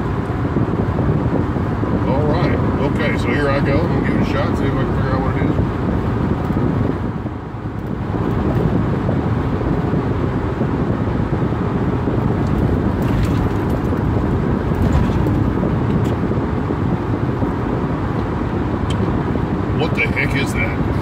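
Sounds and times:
road and engine noise in car: 0:00.0 - 0:21.0.

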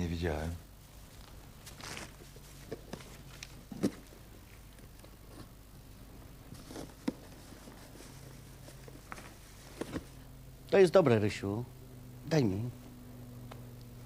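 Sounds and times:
wrapping paper rustling and tearing: 0:01.0 - 0:03.9.

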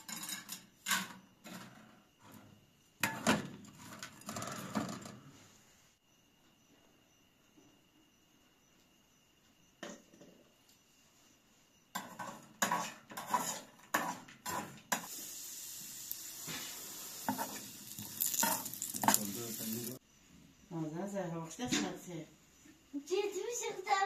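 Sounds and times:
spoon scraping in a pan: 0:12.0 - 0:15.3, 0:16.1 - 0:20.0
raisins sizzling: 0:14.5 - 0:20.0.

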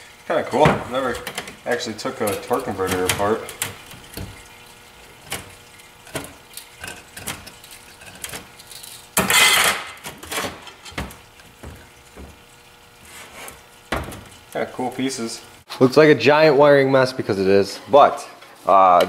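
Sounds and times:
metal scrape: 0:13.0 - 0:13.6.

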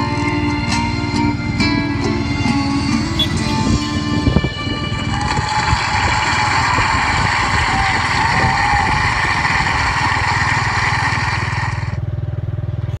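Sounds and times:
street noise: 0:00.0 - 0:13.0
motorcycle engine idling: 0:02.9 - 0:04.4, 0:05.2 - 0:13.0.

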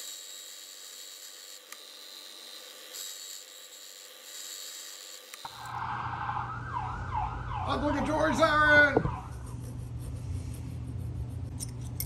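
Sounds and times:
key-cutting machine whining: 0:00.0 - 0:05.8
ambulance siren wailing: 0:05.6 - 0:09.3
low traffic rumble: 0:05.7 - 0:12.0.

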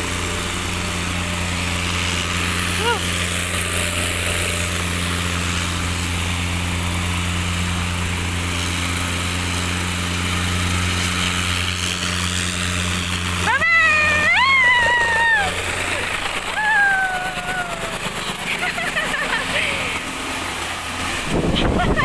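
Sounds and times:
helicopter engine drone: 0:00.0 - 0:22.0
high-pitched voice calling: 0:02.8 - 0:03.1, 0:13.5 - 0:18.5.

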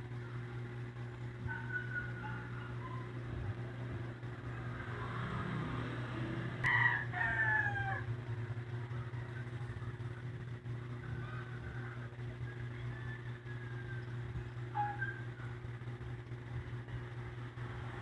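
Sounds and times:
steady low hum: 0:00.0 - 0:18.0
rooster crowing: 0:01.5 - 0:03.2, 0:06.3 - 0:08.4, 0:11.0 - 0:15.3.

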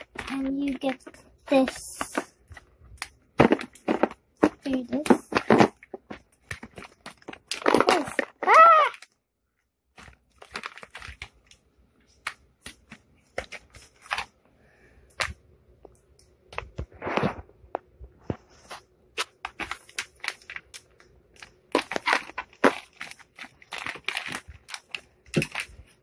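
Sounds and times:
plastic tools clicking and tapping: 0:00.0 - 0:09.2, 0:19.2 - 0:26.0.

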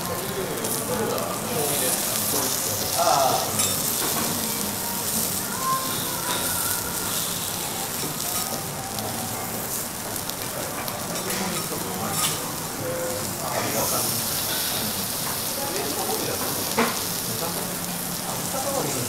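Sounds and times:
food sizzling on a griddle: 0:00.0 - 0:19.0.

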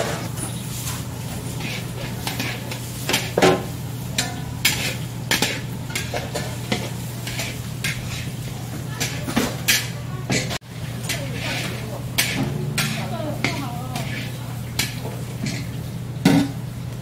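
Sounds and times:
metal spatula scraping a wok: 0:00.0 - 0:03.4, 0:04.2 - 0:15.7
food sizzling: 0:00.4 - 0:17.0.

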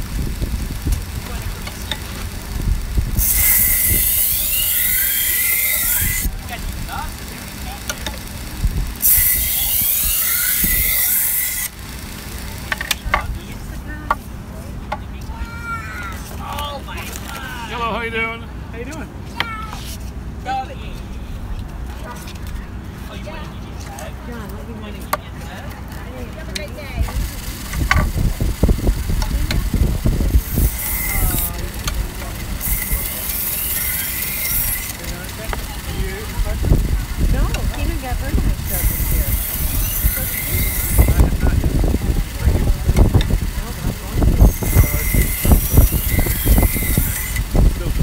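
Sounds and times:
machine low rumble: 0:00.0 - 0:04.9, 0:06.2 - 0:10.8, 0:26.2 - 0:33.3, 0:34.9 - 0:48.0
sharpener motor hum: 0:00.0 - 0:13.2, 0:27.0 - 0:47.6
knife grinding on belt sharpener: 0:00.9 - 0:13.1, 0:30.3 - 0:36.4, 0:38.6 - 0:41.4, 0:44.4 - 0:47.5
faint voices: 0:12.2 - 0:48.0.

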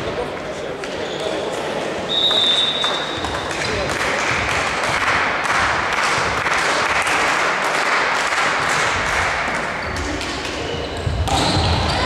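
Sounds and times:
volleyball hits and thuds: 0:11.0 - 0:12.0.

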